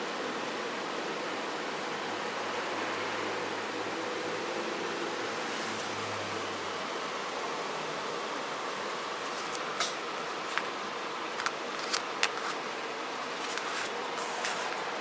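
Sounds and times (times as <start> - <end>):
steady hiss: 0.0 - 15.0.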